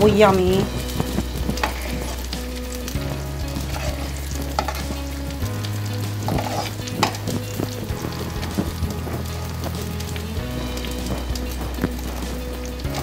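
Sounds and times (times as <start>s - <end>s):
gravy sizzling in a frying pan: 0.0s - 13.0s
metal spoon scraping a pan: 0.8s - 5.4s.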